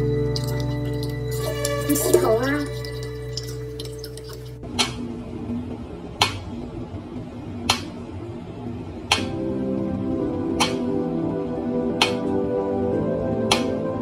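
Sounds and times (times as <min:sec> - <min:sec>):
metronome ticking: 0:10.6 - 0:10.9.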